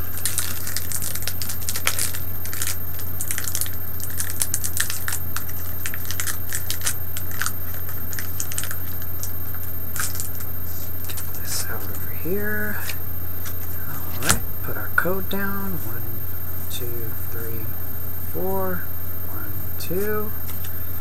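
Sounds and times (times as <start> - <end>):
foil wrapper tearing and crinkling: 0.0 - 11.5
low hum: 0.0 - 21.0.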